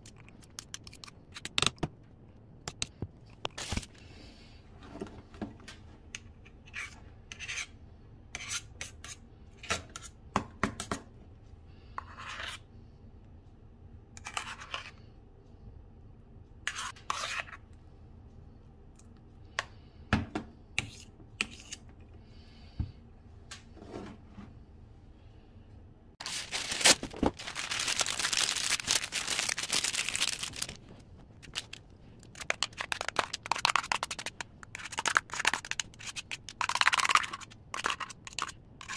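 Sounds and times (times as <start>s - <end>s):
metal spatula scraping bowl: 16.7s - 17.6s.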